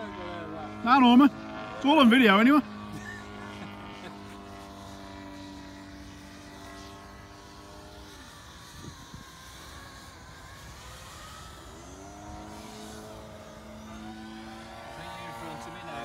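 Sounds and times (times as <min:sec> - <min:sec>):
drone motors whining: 0:00.0 - 0:16.0
wind rumble on microphone: 0:08.6 - 0:09.8.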